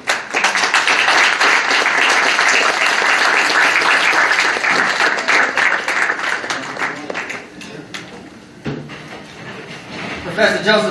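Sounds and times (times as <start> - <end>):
audience applause: 0.0 - 7.5.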